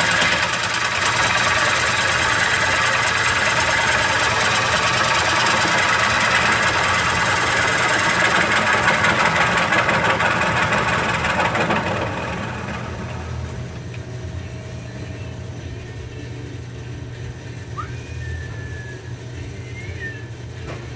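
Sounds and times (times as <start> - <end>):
wood shaving on lathe: 0.0 - 13.7
lathe motor hum: 0.0 - 20.6.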